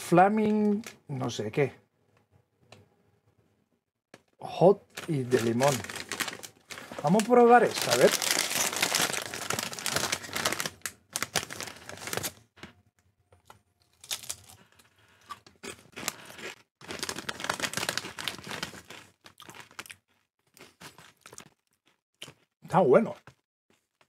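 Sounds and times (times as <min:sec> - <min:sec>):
chip bag crackling: 0:04.9 - 0:12.4, 0:16.0 - 0:19.9.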